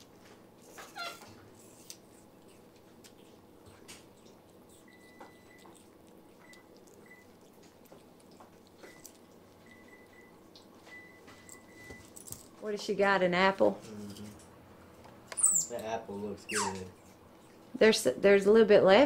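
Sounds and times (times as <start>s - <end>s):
monkey chewing apple: 0.0s - 10.8s
faint high peeps: 16.5s - 16.8s.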